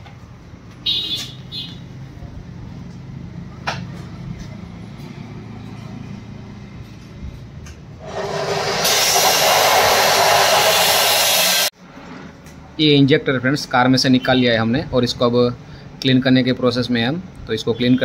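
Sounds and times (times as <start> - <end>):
rushing hiss of air: 8.0 - 11.7.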